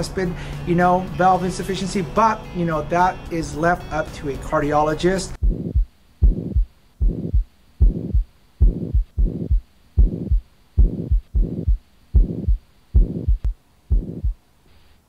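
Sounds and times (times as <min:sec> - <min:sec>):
heart murmur: 0:05.4 - 0:14.4
heartbeat thumps: 0:05.4 - 0:14.4.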